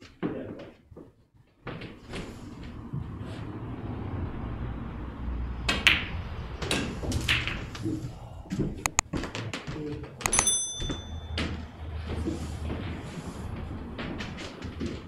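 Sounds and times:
billiard balls clicking: 8.8s - 9.1s.

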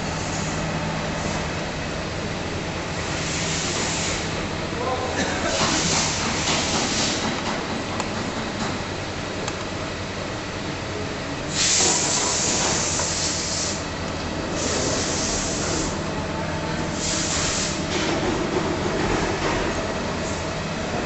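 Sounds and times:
workshop machinery humming: 0.0s - 21.0s
loud hiss bursts: 3.1s - 4.3s, 5.5s - 7.3s, 11.5s - 13.9s, 16.9s - 17.9s.

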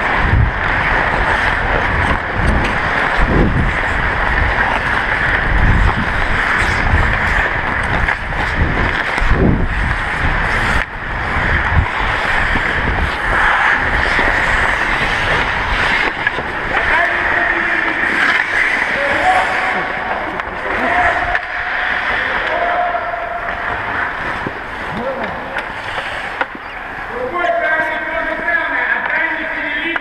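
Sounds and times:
wind buffeting microphone: 0.0s - 17.5s
skate blades hissing on ice: 0.8s - 20.1s, 25.6s - 26.8s.

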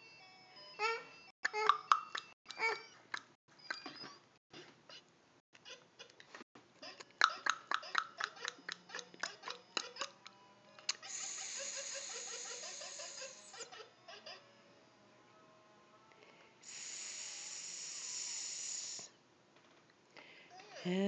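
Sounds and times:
toddler laughing: 10.9s - 14.4s
steady hissing with faint notes: 11.1s - 13.6s, 16.6s - 19.2s.

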